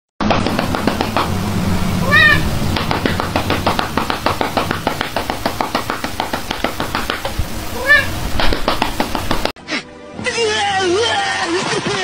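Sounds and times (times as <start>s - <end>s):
fast steady ticking: 0.3s - 9.5s
cat meowing: 2.0s - 2.5s, 7.8s - 8.2s.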